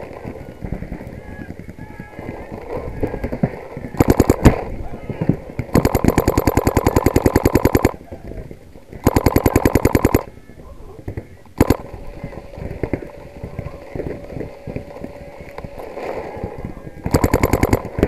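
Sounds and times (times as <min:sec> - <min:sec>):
paintball marker firing rapidly: 0:04.0 - 0:04.8, 0:05.6 - 0:08.0, 0:09.0 - 0:10.3, 0:11.6 - 0:13.1, 0:17.1 - 0:18.0.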